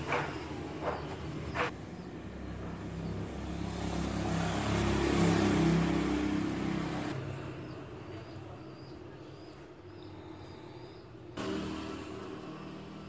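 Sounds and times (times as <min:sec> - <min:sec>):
vehicle passing by: 0:00.0 - 0:08.7, 0:09.8 - 0:13.0.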